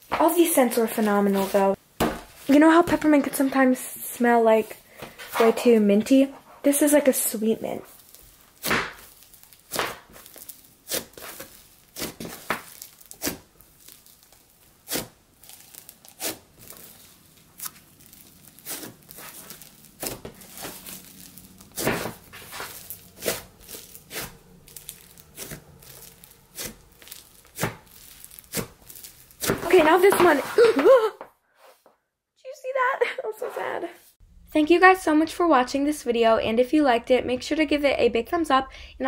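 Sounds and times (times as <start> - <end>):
slime squishing and crackling: 7.8 - 30.4.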